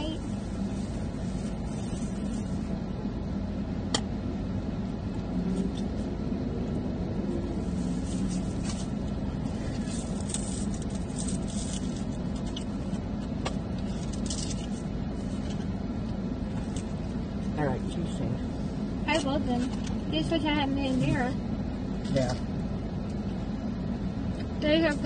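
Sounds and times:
low hum inside car cabin: 0.0 - 25.0
food wrapping crinkling: 7.6 - 12.9.

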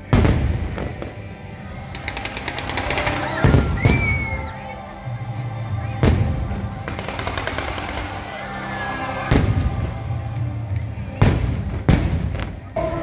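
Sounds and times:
fireworks bangs: 0.0 - 4.4, 9.3 - 10.2, 11.2 - 12.9
fireworks crackling: 0.0 - 4.5, 6.0 - 8.6, 9.3 - 13.0
music: 0.0 - 13.0.

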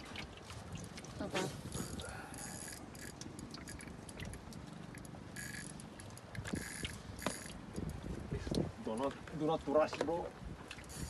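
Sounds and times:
fishing reel buzzing: 1.7 - 3.9, 5.3 - 5.8, 6.4 - 7.6
fishing reel ticks: 2.3 - 3.9, 5.0 - 7.6.

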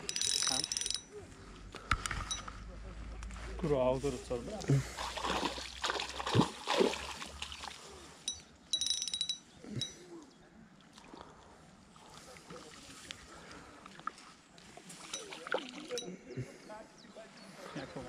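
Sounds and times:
fish splashing in water: 5.0 - 8.0.

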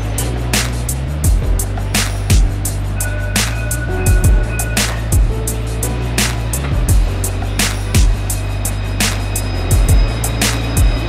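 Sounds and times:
music with steady drum beat: 0.0 - 11.0.

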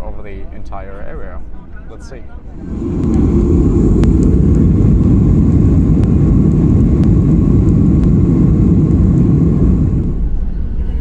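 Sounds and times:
runway rumble: 2.2 - 11.0
jet engines roaring: 2.4 - 10.5.

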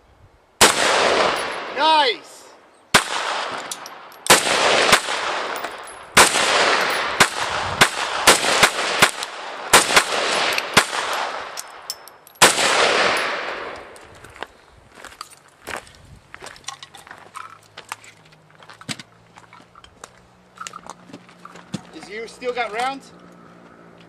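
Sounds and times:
rifle shots with echo: 0.6 - 2.0, 2.9 - 11.8, 12.4 - 14.0.

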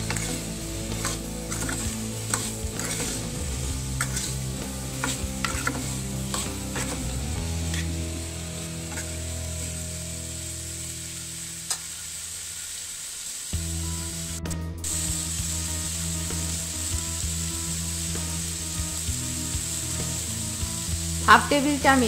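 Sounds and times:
spatula scraping pan: 0.0 - 8.0, 8.9 - 9.2
vegetables sizzling in oil: 0.0 - 22.0.

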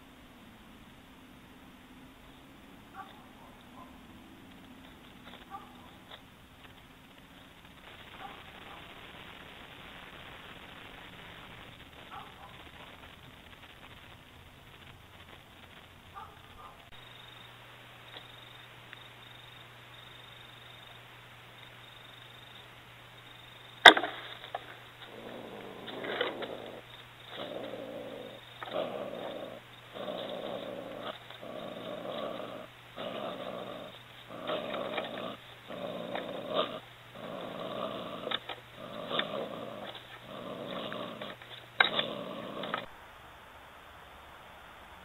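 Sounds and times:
animal rasping growls: 24.5 - 42.9.

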